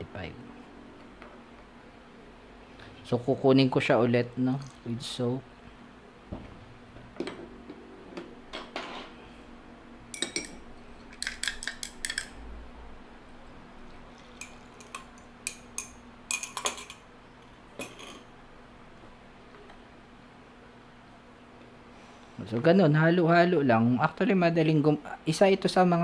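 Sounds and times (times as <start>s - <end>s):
metal rod clinking against cup: 10.2s - 10.6s, 11.2s - 12.3s.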